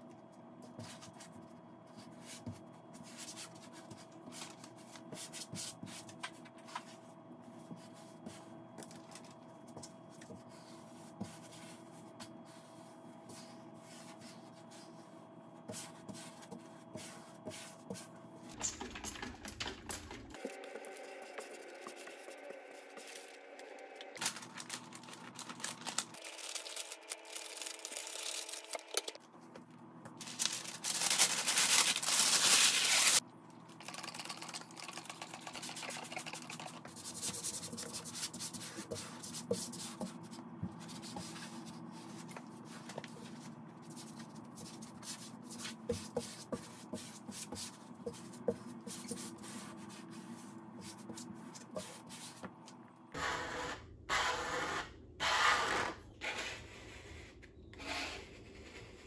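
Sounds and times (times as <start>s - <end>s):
plastic film rubbed on glass: 30.2s - 33.2s.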